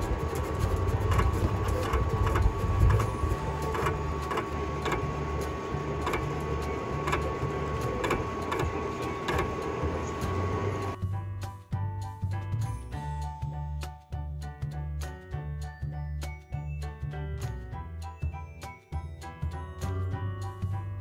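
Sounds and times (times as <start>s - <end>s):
cutting plotter motors humming: 0.0s - 11.0s.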